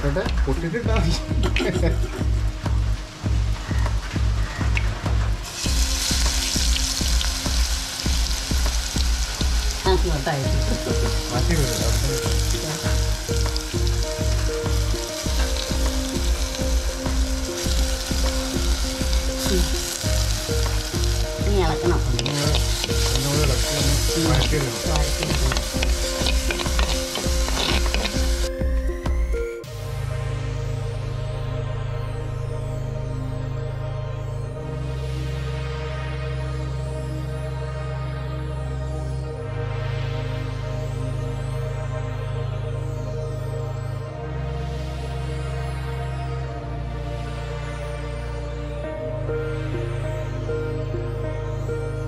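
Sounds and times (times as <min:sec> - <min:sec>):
background music with steady beat: 0:00.0 - 0:52.0
paste sizzling in hot oil: 0:05.4 - 0:28.6
metal spoon stirring in pot: 0:22.2 - 0:28.5.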